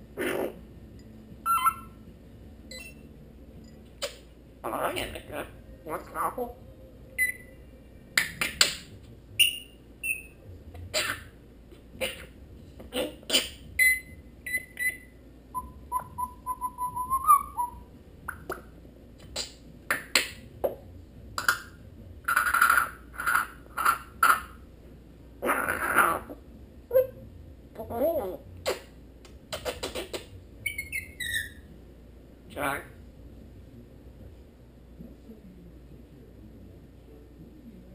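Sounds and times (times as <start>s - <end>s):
harsh parrot calls: 0.2s - 0.6s, 15.9s - 17.9s, 25.4s - 27.1s.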